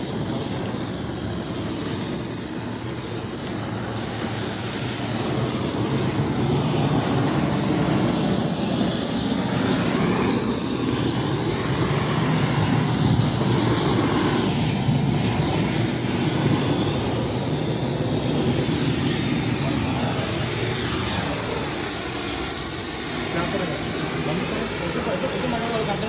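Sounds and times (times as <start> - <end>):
gas flame gun burning: 0.0 - 26.0.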